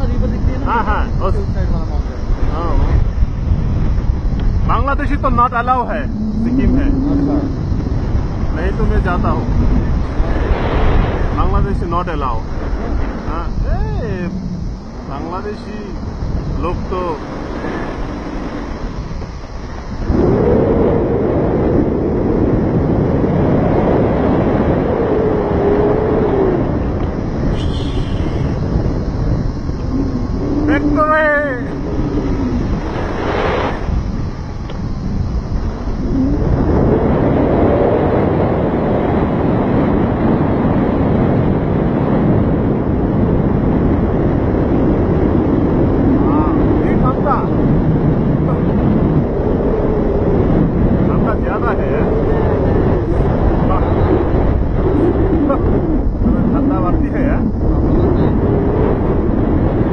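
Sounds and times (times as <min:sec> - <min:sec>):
heavy rumbling noise: 0:00.0 - 0:59.9
wind buffeting microphone: 0:00.0 - 0:59.9.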